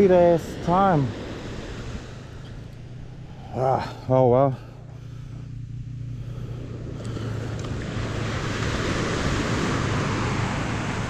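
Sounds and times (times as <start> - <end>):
ocean surf washing onto beach: 0.0 - 4.6, 6.4 - 11.0
wind on microphone: 6.6 - 11.0.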